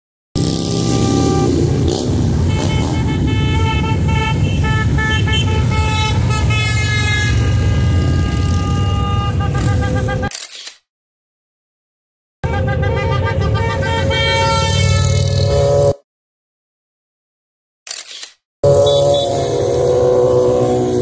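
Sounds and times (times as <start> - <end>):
motorcycle engines rumbling: 0.4 - 10.3, 18.6 - 21.0
horns honking: 0.6 - 10.3, 12.4 - 16.0, 18.6 - 21.0.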